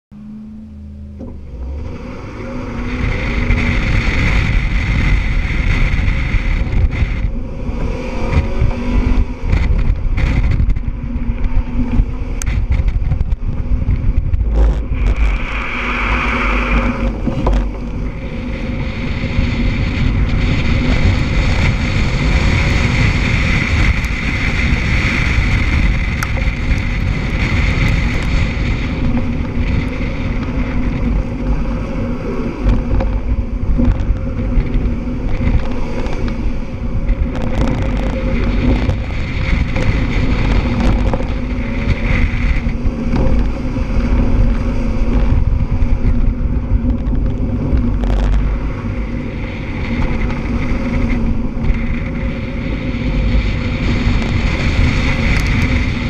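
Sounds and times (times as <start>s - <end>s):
car engine revving hard: 0.1s - 10.8s
wind buffeting microphone: 0.2s - 56.0s.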